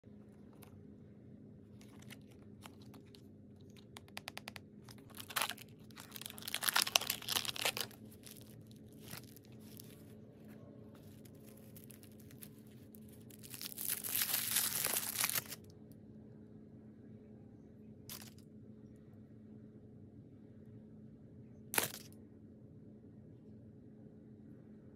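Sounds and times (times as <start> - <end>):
paper tearing and crinkling: 1.7 - 3.8, 4.4 - 10.1, 11.0 - 15.6, 21.8 - 22.1
plastic crackle: 1.7 - 10.2, 11.0 - 15.7, 21.8 - 22.1.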